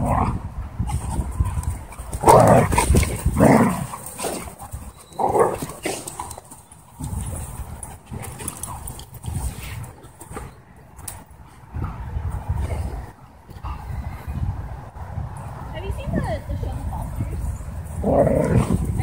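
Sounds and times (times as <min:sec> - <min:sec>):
dogs barking while play-fighting: 0:01.4 - 0:06.4.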